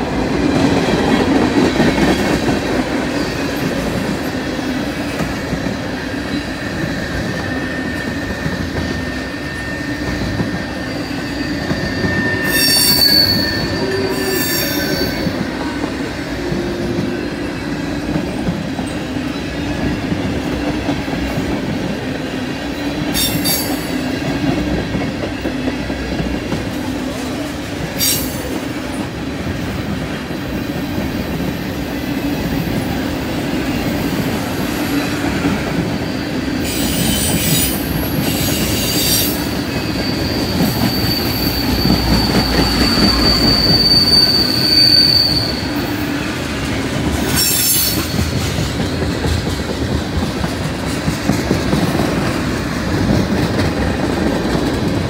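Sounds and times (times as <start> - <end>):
train wheels rumbling on rail: 0.0 - 55.0
high wheel squeal: 6.4 - 15.5, 34.8 - 46.3, 47.2 - 48.6.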